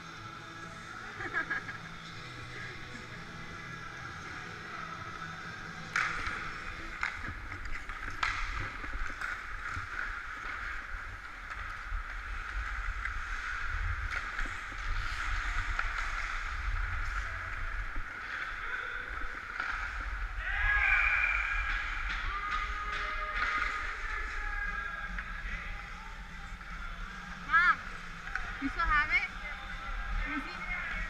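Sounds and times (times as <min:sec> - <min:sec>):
hockey sticks and puck clacking: 0:01.2 - 0:31.0
skate blades scraping ice: 0:05.2 - 0:20.6.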